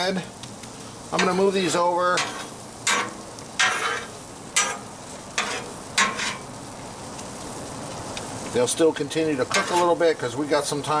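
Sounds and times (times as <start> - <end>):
burgers and onions sizzling: 0.0 - 11.0
metal spatula scraping griddle: 1.1 - 6.5, 9.5 - 10.0.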